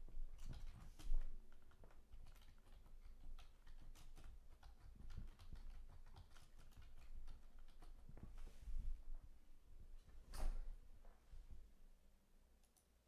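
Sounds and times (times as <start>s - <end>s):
typing on computer keyboard: 0.2s - 8.4s.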